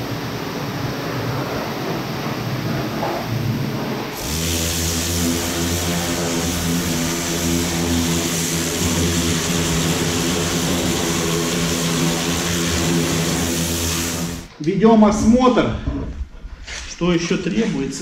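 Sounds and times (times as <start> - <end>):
steady droning hum: 0.0 - 16.8
pressure washer jet hissing on metal: 4.1 - 14.5.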